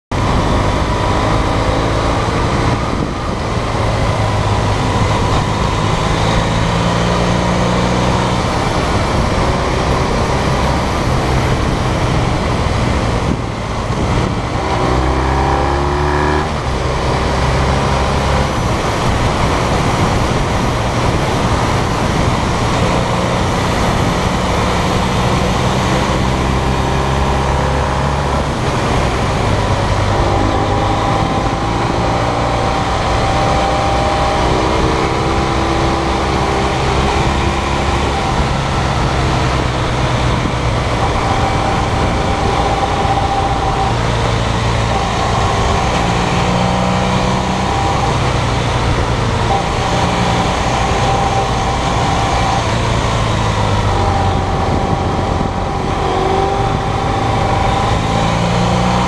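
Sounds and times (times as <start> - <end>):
motorcycle engine running: 0.1 - 59.0
wind rush over camera: 36.2 - 58.4.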